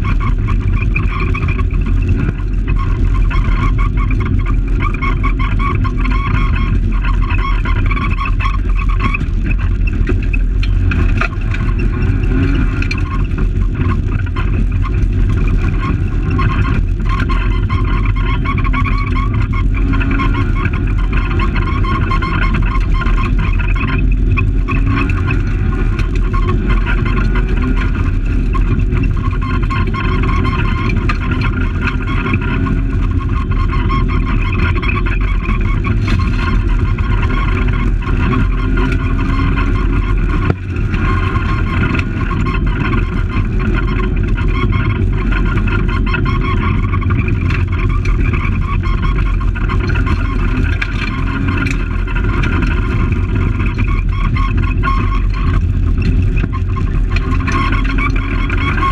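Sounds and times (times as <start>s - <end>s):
car engine under load: 0.0s - 58.9s
gravel road noise: 0.0s - 58.9s.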